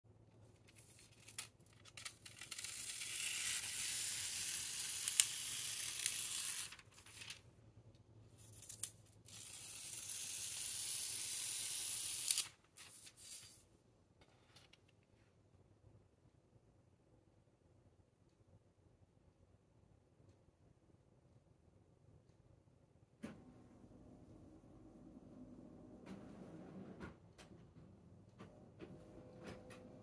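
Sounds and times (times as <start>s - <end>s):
paper rustles and clicks: 0.4s - 3.0s, 5.0s - 7.4s.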